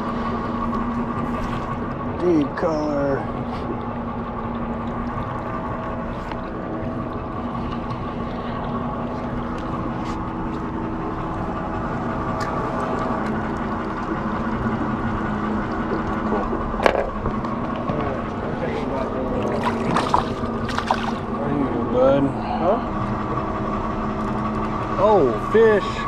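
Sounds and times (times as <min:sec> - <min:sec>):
boat engine idling: 0:00.0 - 0:26.0.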